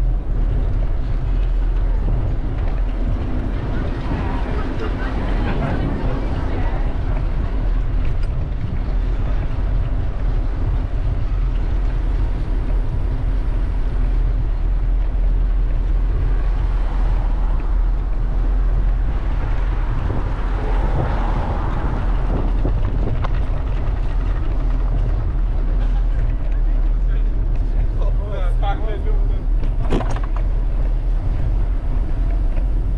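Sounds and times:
city traffic noise: 0.0s - 32.9s
wind rumbling on microphone: 0.0s - 32.9s.

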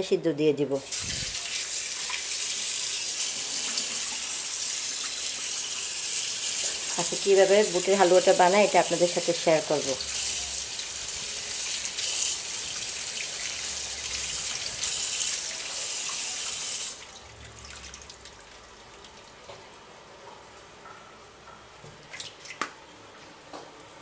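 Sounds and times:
tap water running into colander: 0.8s - 19.9s.

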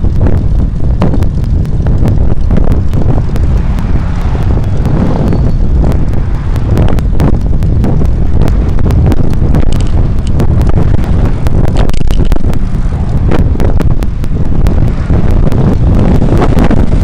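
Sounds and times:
rapid light ticks: 0.0s - 17.0s
wind buffeting microphone: 0.0s - 17.0s
car passing alongside: 3.3s - 6.8s.

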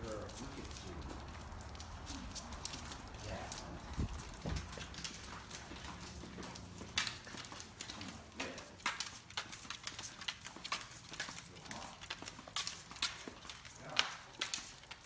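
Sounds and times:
dog claws clicking on tiles: 0.0s - 15.0s.

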